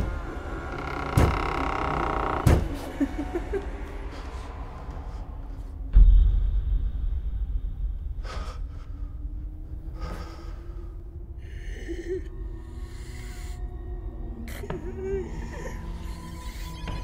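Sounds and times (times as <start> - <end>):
low drone: 0.0 - 17.0
eerie high tones: 11.3 - 17.0.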